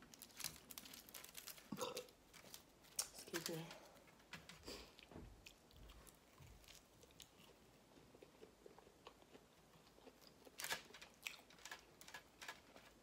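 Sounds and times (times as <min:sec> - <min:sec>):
person chewing: 0:04.0 - 0:13.0.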